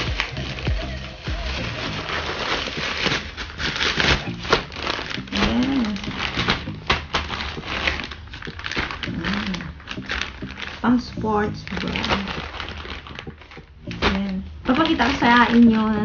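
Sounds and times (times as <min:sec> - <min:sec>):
plastic mailer tearing: 0:00.0 - 0:16.0
plastic packaging crinkling: 0:00.0 - 0:16.0.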